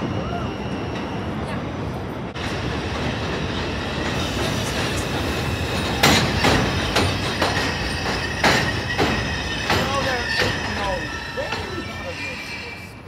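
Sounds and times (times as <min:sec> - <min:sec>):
subway train rumble: 0:00.0 - 0:13.0
wheels clacking over rail joints: 0:02.4 - 0:12.2.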